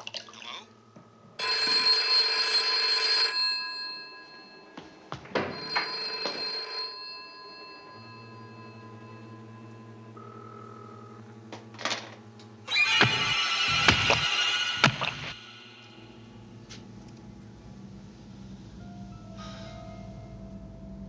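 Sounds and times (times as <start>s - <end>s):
telephone bell ringing: 1.4s - 11.4s
low steady hum: 6.8s - 12.7s, 14.8s - 21.0s.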